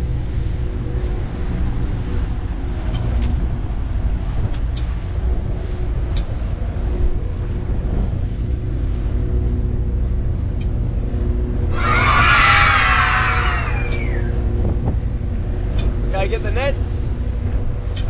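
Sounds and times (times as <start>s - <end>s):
outboard motors running: 0.1s - 17.9s
wind rushing past microphone: 11.6s - 15.5s.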